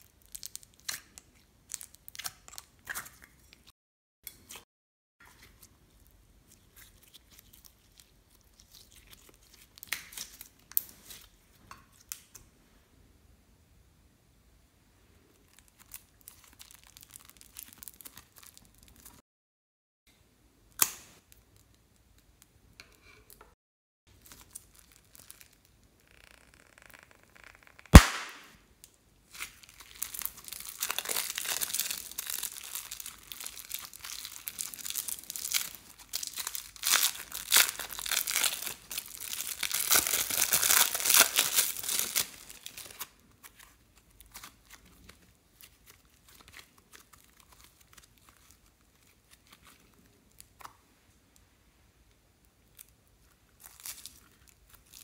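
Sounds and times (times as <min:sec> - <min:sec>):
plastic bags crinkling and tearing: 0:15.5 - 0:19.2, 0:24.2 - 0:25.7, 0:29.4 - 0:50.5, 0:53.5 - 0:55.0
sharp click: 0:28.0 - 0:28.5.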